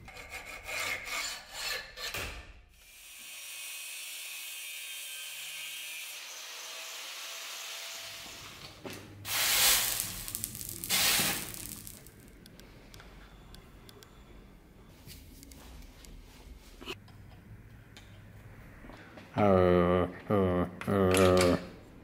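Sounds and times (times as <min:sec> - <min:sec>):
hacksaw rasping on steel: 0:00.0 - 0:02.2.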